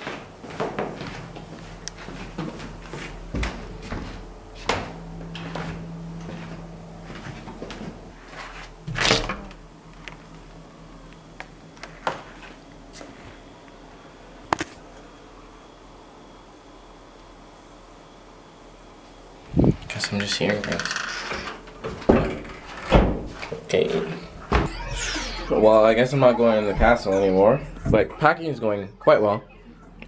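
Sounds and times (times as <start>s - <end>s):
footsteps in stairwell: 0.0s - 9.1s.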